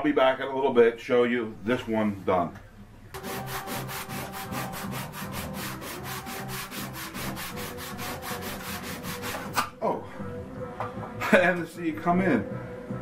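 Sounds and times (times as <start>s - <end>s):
sandpaper rubbing wood: 3.2s - 9.6s.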